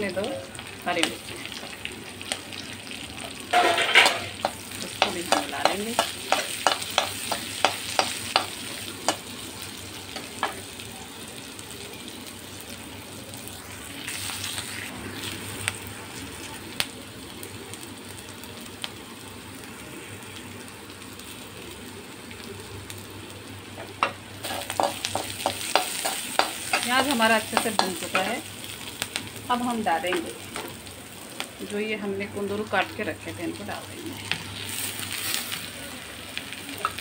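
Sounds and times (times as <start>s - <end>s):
onions sizzling in hot oil: 0.0s - 37.0s.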